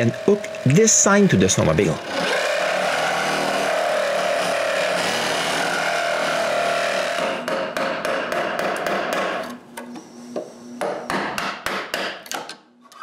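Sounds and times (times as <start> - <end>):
reciprocating saw cutting wood: 2.0 - 7.5.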